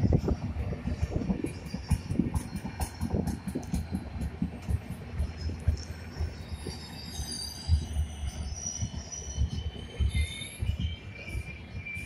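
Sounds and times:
train rumbling over rail joints: 0.0 - 12.0
high-pitched wheel squeals: 6.1 - 12.0.

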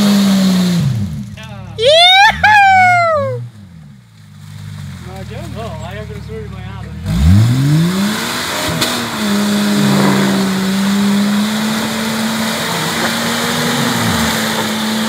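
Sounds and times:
engine at high revs: 0.0 - 1.4, 6.6 - 15.0.

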